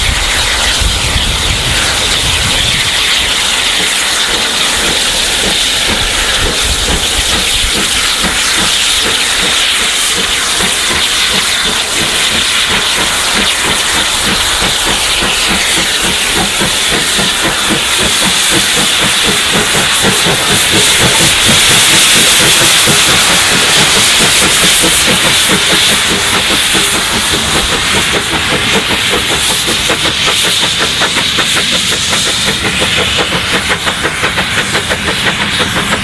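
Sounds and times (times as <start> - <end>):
steam locomotive cylinder hiss: 0.0 - 36.0
steam locomotive exhaust beat: 0.0 - 36.0.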